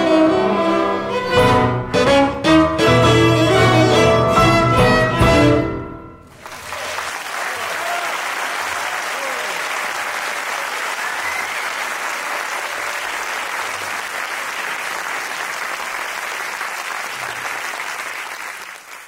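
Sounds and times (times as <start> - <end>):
audience applauding: 6.3 - 19.0.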